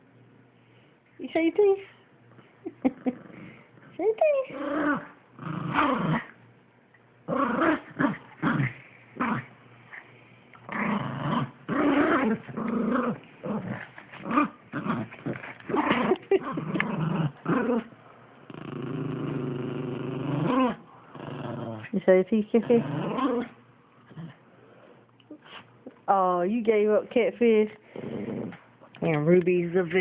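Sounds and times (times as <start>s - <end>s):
dogs play-growling: 2.8s - 6.4s, 7.2s - 25.8s, 27.6s - 29.0s.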